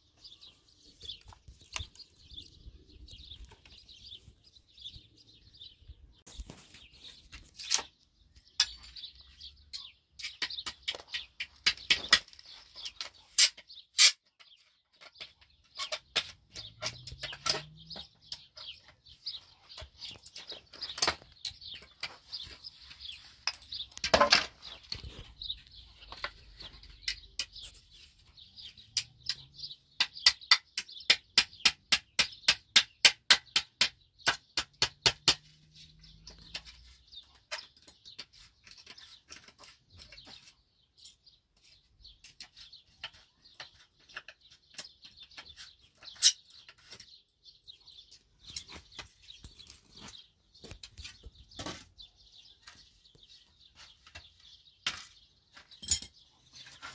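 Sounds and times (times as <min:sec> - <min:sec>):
birds chirping: 0:00.0 - 0:56.9
hammering on wooden boards: 0:09.8 - 0:14.2, 0:28.9 - 0:40.2.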